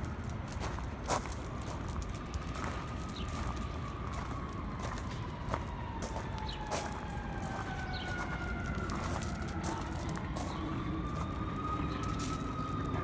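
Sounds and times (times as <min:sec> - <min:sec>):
emergency vehicle siren wailing: 0:00.0 - 0:13.0.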